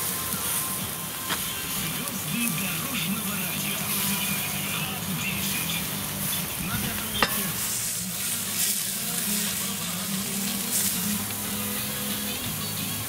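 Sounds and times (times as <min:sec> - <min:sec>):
sausages sizzling on grill: 0:00.0 - 0:13.0.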